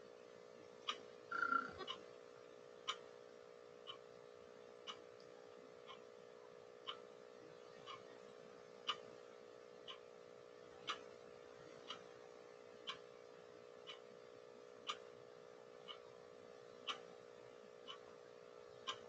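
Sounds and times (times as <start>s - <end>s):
faint electrical hum: 0.0s - 19.0s
clock ticking: 0.8s - 2.0s, 2.8s - 3.0s, 3.8s - 4.1s, 4.8s - 5.1s, 6.8s - 7.0s, 7.8s - 8.0s, 8.8s - 9.1s, 9.8s - 10.1s, 10.8s - 11.1s, 11.8s - 12.1s, 12.8s - 13.1s, 13.8s - 14.1s, 14.8s - 15.1s, 15.8s - 16.1s, 16.8s - 17.2s, 17.8s - 18.1s, 18.8s - 19.0s.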